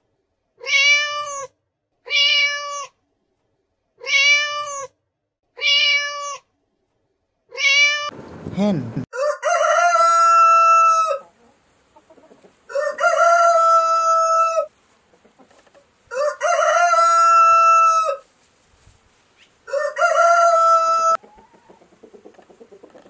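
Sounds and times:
rooster crowing: 9.1s - 11.3s, 12.7s - 14.7s, 16.1s - 18.3s, 19.6s - 21.8s.

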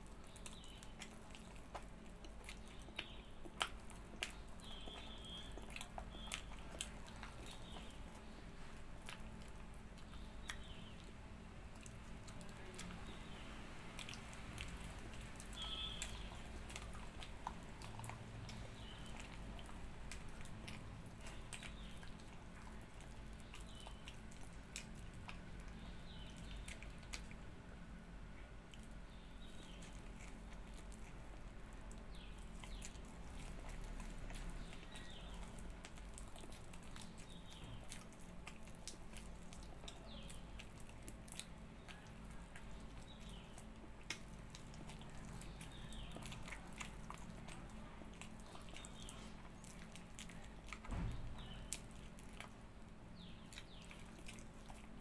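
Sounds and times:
wet sucking and chewing: 0.0s - 55.0s.

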